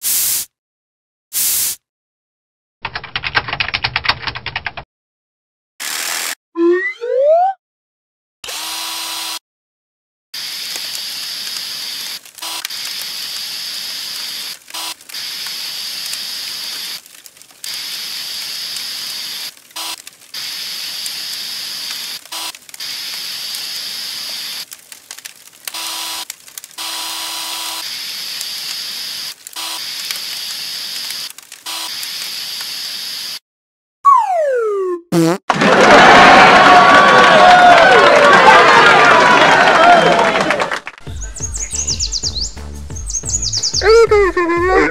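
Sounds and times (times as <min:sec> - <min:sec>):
water spraying from fire hose: 0:00.0 - 0:00.5, 0:01.4 - 0:01.8, 0:10.4 - 0:33.4.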